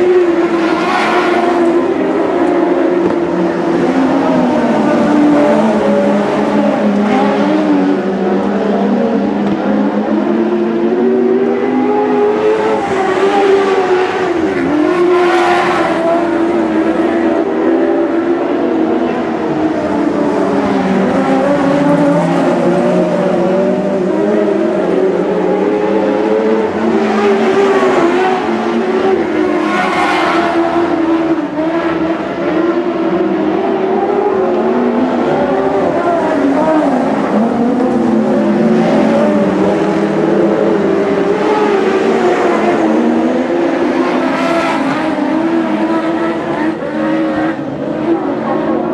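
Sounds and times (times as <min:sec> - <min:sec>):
race car engines revving: 0:00.0 - 0:48.9.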